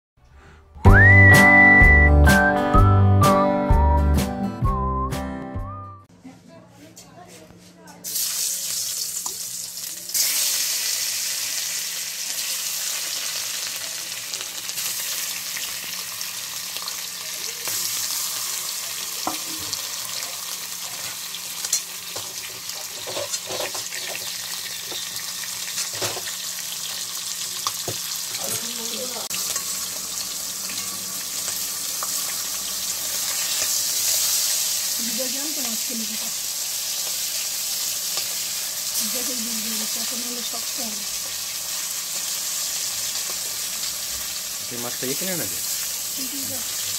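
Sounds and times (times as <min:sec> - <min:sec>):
fish sizzling in hot oil: 0:08.0 - 0:46.9.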